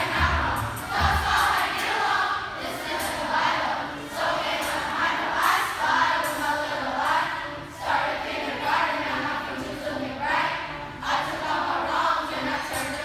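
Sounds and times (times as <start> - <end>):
backing track: 0.0 - 10.1
children rapping and singing: 0.0 - 10.5, 11.1 - 13.0.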